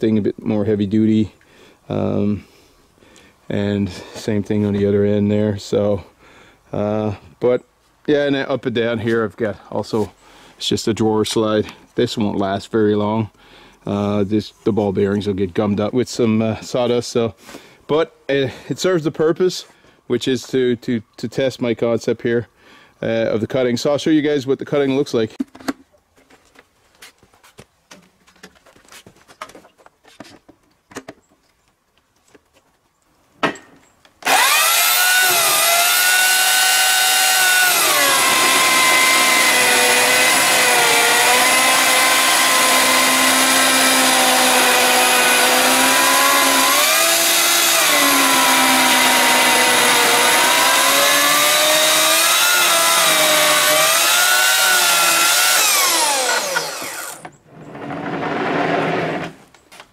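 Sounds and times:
electric chainsaw cutting log: 0:34.2 - 0:59.4.

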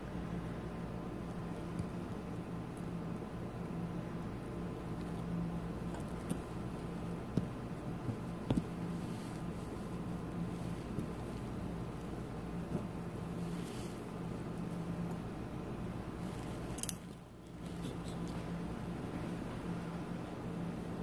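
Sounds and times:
low mechanical hum: 0:00.0 - 0:21.0
metal surgical instruments clicking: 0:16.7 - 0:17.1.

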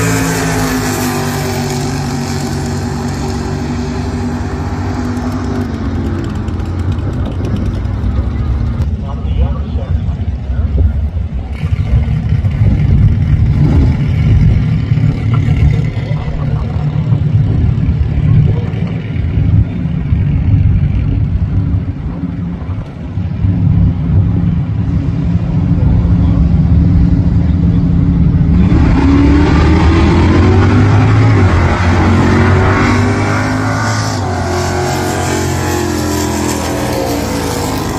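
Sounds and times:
engine revving up: 0:00.0 - 0:07.7, 0:11.6 - 0:19.8, 0:26.2 - 0:37.9
muscle car engines idling: 0:05.0 - 0:24.8.

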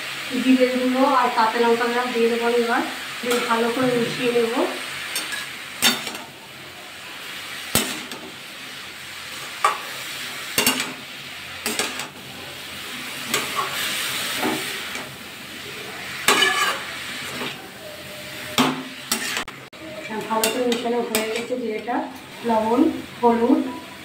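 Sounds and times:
vegetable sizzling in oil: 0:00.0 - 0:24.0
metal spatula scraping metal pan: 0:03.2 - 0:06.2, 0:16.2 - 0:17.6, 0:18.5 - 0:19.5.

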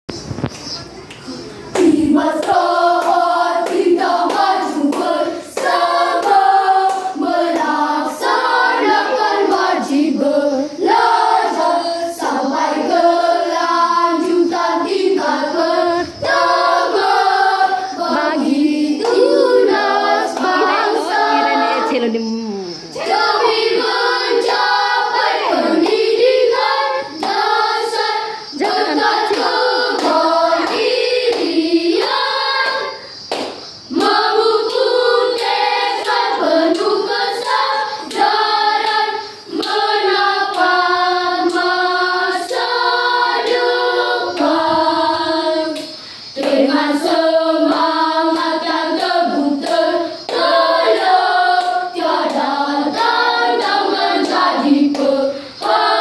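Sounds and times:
children singing together: 0:01.3 - 0:56.0
hand claps keeping time: 0:01.8 - 0:10.0, 0:18.3 - 0:21.5, 0:28.6 - 0:39.9.

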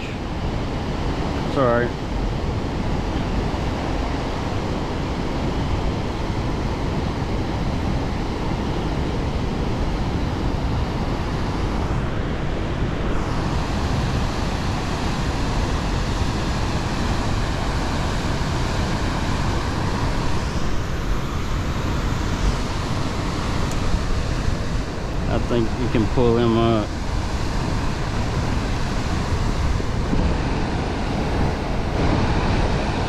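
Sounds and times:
turbulent river water rushing: 0:12.6 - 0:33.0.

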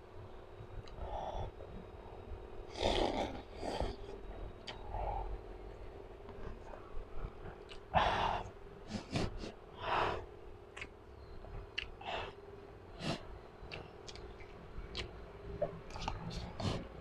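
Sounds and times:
mouth clicks: 0:10.7 - 0:11.0, 0:11.8 - 0:12.0, 0:13.0 - 0:15.2.

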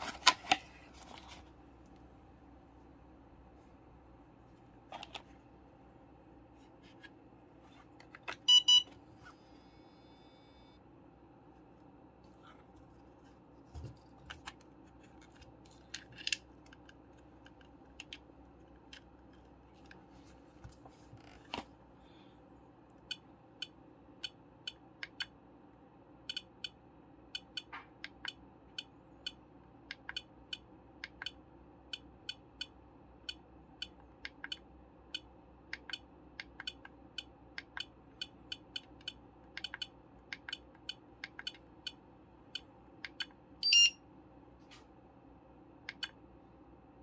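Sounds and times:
charger beep: 0:08.5 - 0:08.9, 0:43.6 - 0:44.0.

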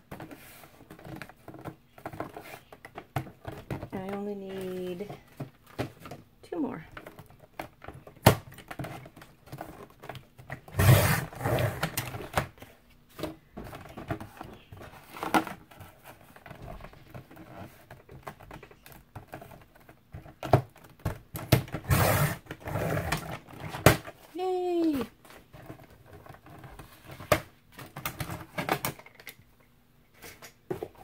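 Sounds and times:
trimmer cutting cardboard: 0:10.7 - 0:12.1, 0:21.7 - 0:23.4.

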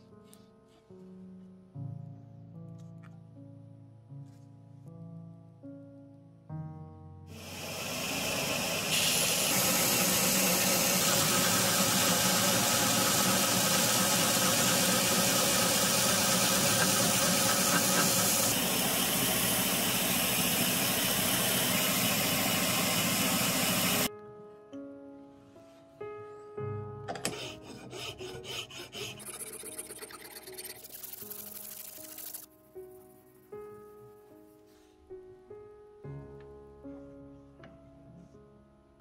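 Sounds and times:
machine hum: 0:07.4 - 0:24.1
belt grinder grinding steel blade: 0:27.2 - 0:32.5.

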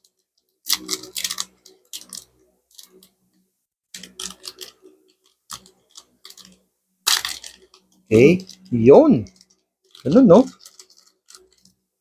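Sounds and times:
packaging crinkling: 0:00.7 - 0:03.1, 0:04.0 - 0:07.8, 0:09.3 - 0:11.7.

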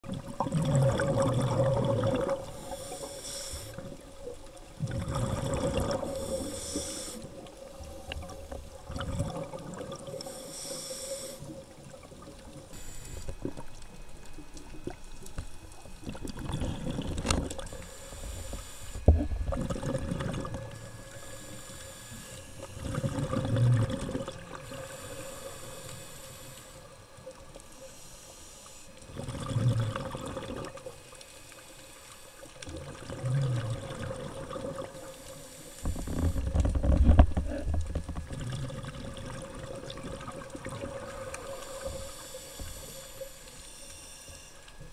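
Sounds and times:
exhaled bubbles rumbling: 0:00.0 - 0:02.7, 0:03.8 - 0:06.6, 0:07.3 - 0:10.4, 0:13.3 - 0:21.2, 0:22.5 - 0:25.0, 0:29.0 - 0:30.9, 0:32.6 - 0:35.1, 0:35.8 - 0:42.1
diver breathing through regulator: 0:02.2 - 0:03.9, 0:05.0 - 0:08.2, 0:10.1 - 0:11.5, 0:17.6 - 0:23.2, 0:24.6 - 0:26.9, 0:34.9 - 0:37.8, 0:41.1 - 0:44.6.

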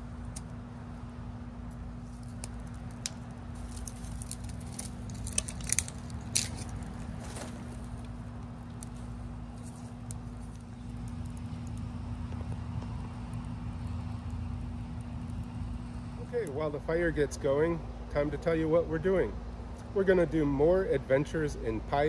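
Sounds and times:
steady low hum: 0:00.0 - 0:22.0
twigs rattling and snapping: 0:01.7 - 0:16.2.

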